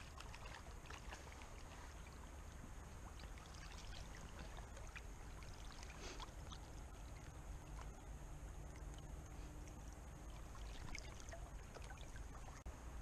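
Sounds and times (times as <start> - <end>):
shallow river water flowing: 0.0 - 13.0.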